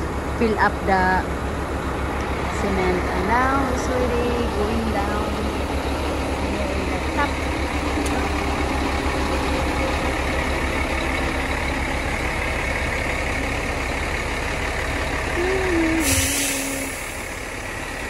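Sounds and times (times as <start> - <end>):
diesel engine droning: 0.0 - 18.0
air hiss burst: 16.0 - 17.0.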